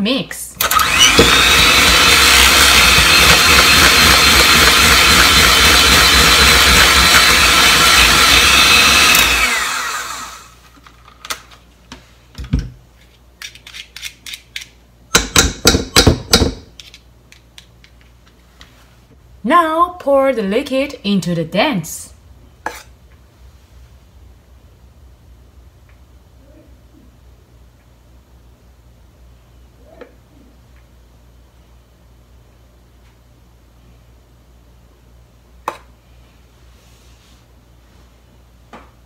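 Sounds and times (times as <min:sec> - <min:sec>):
electric mixer whining: 0:00.6 - 0:10.6.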